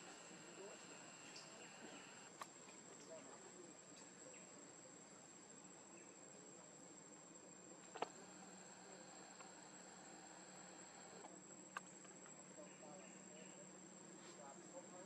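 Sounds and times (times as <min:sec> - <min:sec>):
faint click: 0:00.0 - 0:03.2, 0:07.8 - 0:12.2
insects droning: 0:00.0 - 0:15.0.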